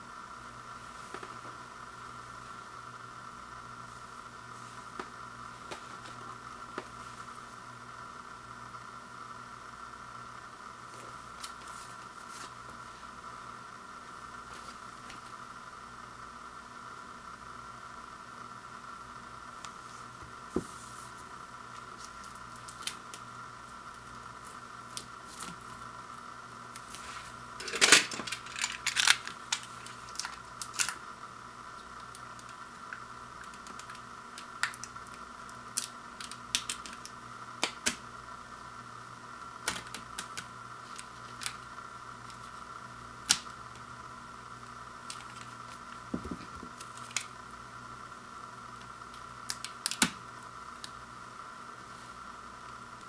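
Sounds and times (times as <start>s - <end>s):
faint high hum: 0.0s - 53.0s
plastic shrink wrap crackling: 26.8s - 31.0s.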